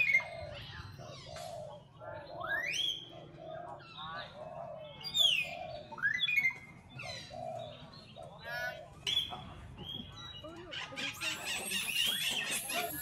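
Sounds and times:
animal squeals: 0:11.1 - 0:13.0.

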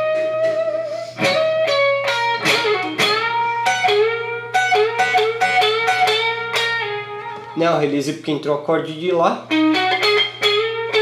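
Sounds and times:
electric guitar melody: 0:00.0 - 0:11.0.

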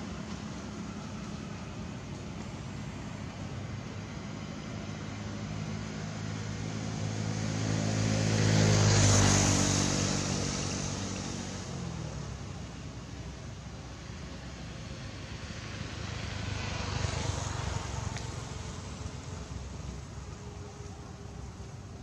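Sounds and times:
vehicle passing by: 0:00.0 - 0:22.0.

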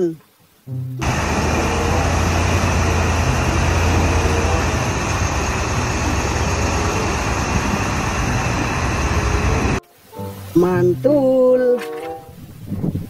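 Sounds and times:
diesel engine running: 0:01.0 - 0:09.8.

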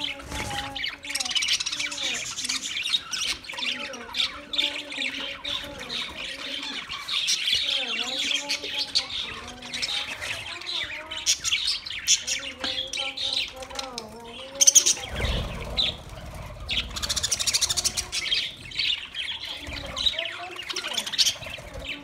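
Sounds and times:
budgerigars chattering: 0:00.0 - 0:22.0.

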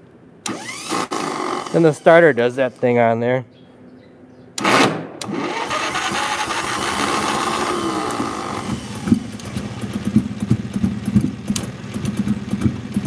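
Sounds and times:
small engine putting unevenly: 0:00.4 - 0:02.9, 0:04.6 - 0:13.0
electric starter whirring: 0:00.4 - 0:03.0, 0:04.6 - 0:12.6
man speaking: 0:01.7 - 0:03.5.

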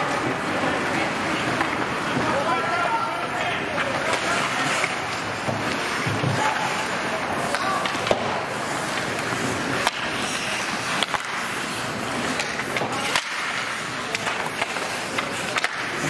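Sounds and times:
sticks clacking on puck: 0:00.9 - 0:02.3, 0:03.4 - 0:16.0
skate blades scraping ice: 0:03.4 - 0:16.0.

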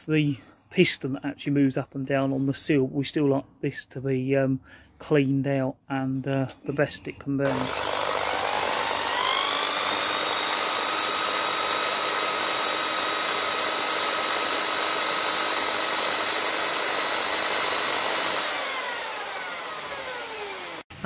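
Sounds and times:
electric drill motor whining: 0:07.4 - 0:20.9.

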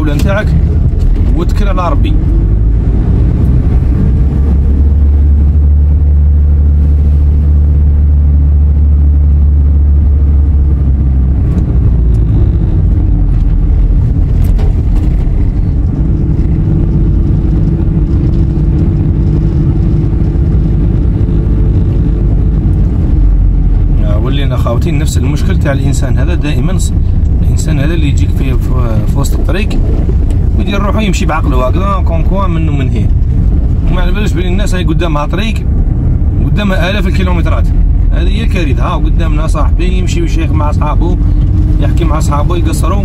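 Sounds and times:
car engine and road noise: 0:00.0 - 0:43.0.

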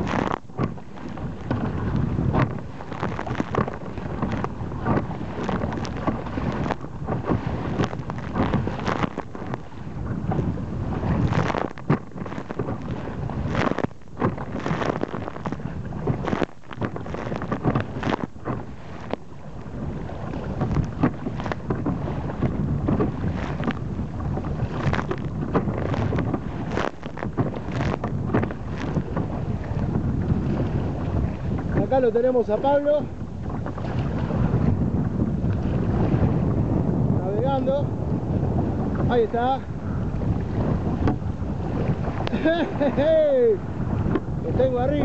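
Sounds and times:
rush of water: 0:00.0 - 0:45.0
waves splashing against kayak hull: 0:00.0 - 0:45.0
wind buffeting microphone: 0:00.0 - 0:45.0.

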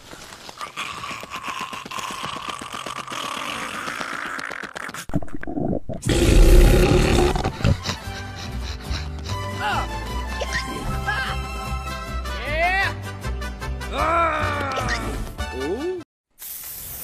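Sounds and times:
deep monster roar: 0:06.0 - 0:07.6
steady hiss: 0:16.4 - 0:17.0.

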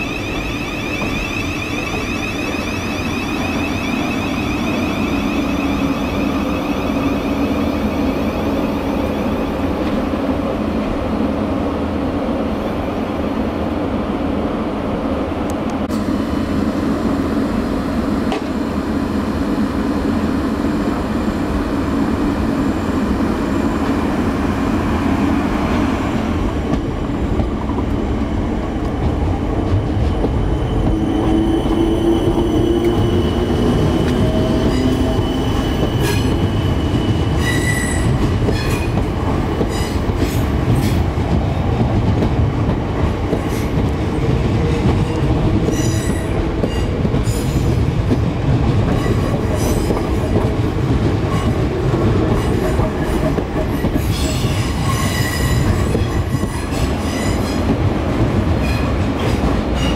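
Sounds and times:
electric train rumbling: 0:00.0 - 0:59.9
train wheels clicking over rail joints: 0:28.8 - 0:59.9.

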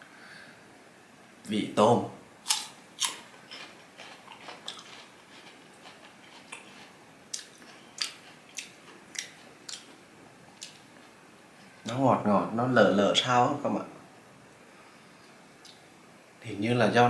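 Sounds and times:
crunchy fruit bite and chewing: 0:02.4 - 0:10.0.

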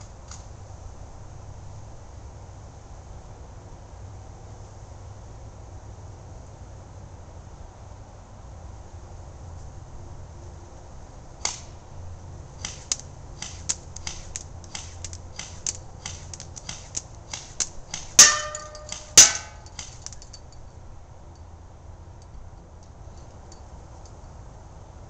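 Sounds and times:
airsoft gun firing single shots: 0:11.4 - 0:11.8, 0:12.6 - 0:20.2
pellets striking brush: 0:12.6 - 0:20.1
ringing metallic hits on a can: 0:17.9 - 0:20.5.

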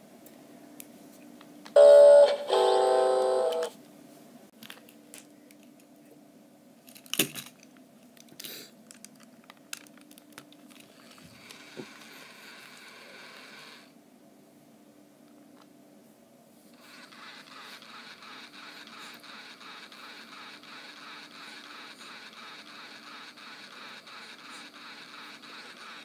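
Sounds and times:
robotic toy electronic tones: 0:01.8 - 0:03.7
soft mechanical whir: 0:09.2 - 0:14.0, 0:16.6 - 0:26.0.

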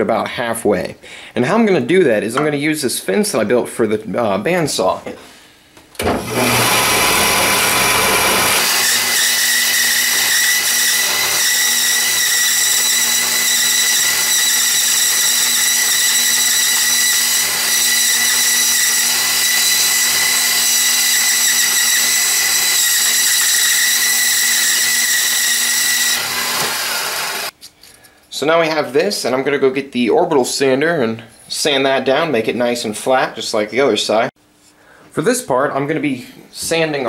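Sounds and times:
bandsaw whining: 0:06.0 - 0:27.5.

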